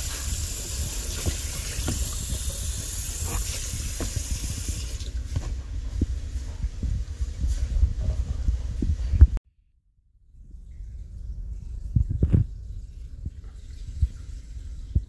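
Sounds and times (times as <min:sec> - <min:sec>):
water running: 0:00.0 - 0:06.0, 0:10.6 - 0:15.0.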